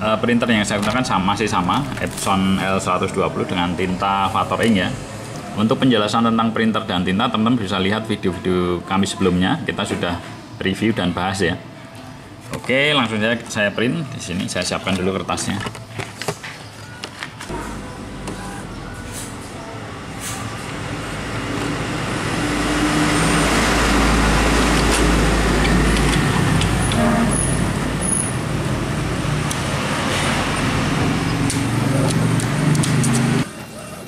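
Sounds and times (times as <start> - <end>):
road traffic: 0.0 - 34.0
truck engine rumbling: 16.9 - 34.0.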